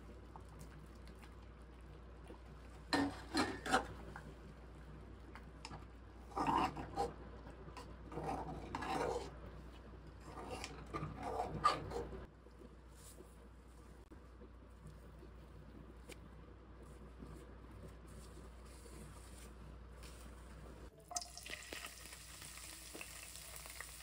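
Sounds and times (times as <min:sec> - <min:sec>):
metal spoon scraping a pot: 0:02.9 - 0:04.0, 0:06.2 - 0:07.2, 0:07.8 - 0:09.4, 0:10.2 - 0:12.3.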